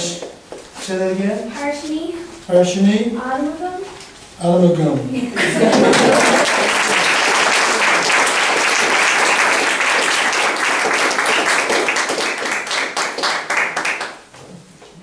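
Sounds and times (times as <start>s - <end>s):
audience applauding: 5.4s - 14.2s.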